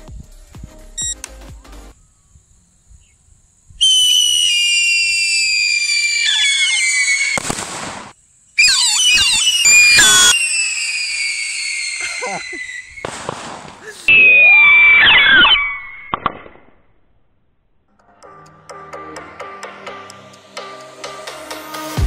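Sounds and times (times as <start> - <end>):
whistling fireworks: 3.8 - 16.6.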